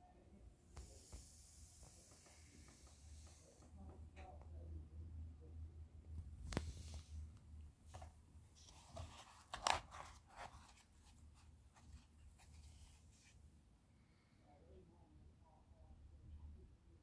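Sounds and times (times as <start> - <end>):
soft handling rustles: 6.4 - 13.5.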